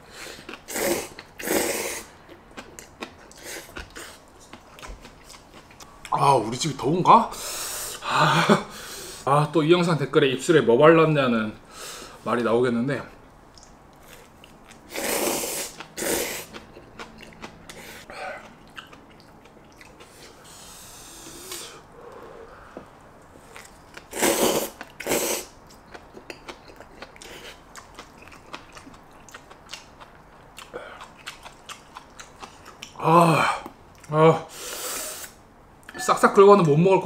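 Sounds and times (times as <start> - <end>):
slurping noodles: 0.4 - 2.1, 14.9 - 16.6, 24.1 - 25.6
wet chewing clicks: 18.4 - 20.4, 24.8 - 33.0.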